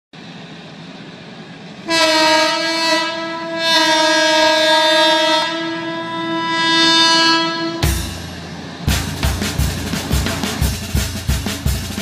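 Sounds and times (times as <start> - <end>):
train horn blast: 1.8 - 8.4
low rumble: 7.8 - 12.0.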